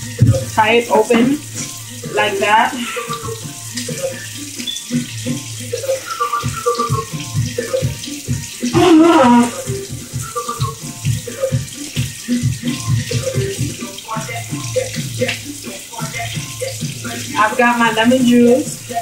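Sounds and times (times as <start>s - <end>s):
tap running into sink: 0.0s - 1.8s
background music: 0.0s - 19.0s.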